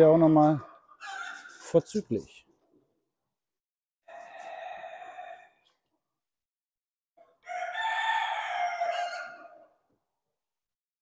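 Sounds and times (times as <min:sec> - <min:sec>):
rooster crowing: 0:01.0 - 0:01.5, 0:04.1 - 0:05.6, 0:07.4 - 0:09.8.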